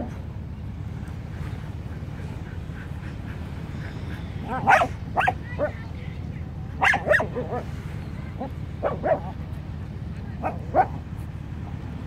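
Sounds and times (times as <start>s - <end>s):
steady low rumble: 0.0s - 12.0s
dog barking: 4.5s - 5.7s, 6.8s - 7.7s, 8.8s - 9.3s, 10.4s - 11.0s.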